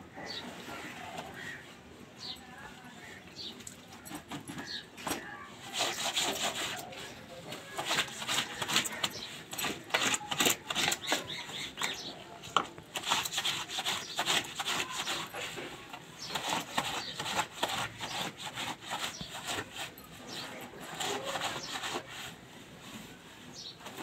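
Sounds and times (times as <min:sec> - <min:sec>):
brush scrubbing wet cloth: 0:04.0 - 0:24.0.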